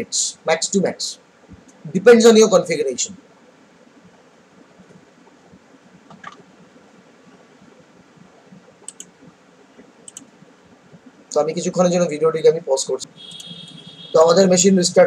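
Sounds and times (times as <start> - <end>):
faint room hiss: 0.0 - 15.0
computer mouse clicks: 8.8 - 9.2, 10.0 - 10.3.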